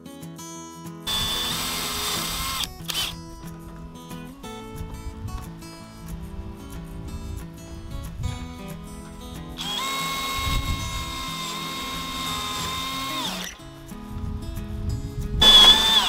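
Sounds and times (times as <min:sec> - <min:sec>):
cordless drill whining: 0:01.1 - 0:03.2, 0:09.6 - 0:13.6, 0:15.4 - 0:16.0.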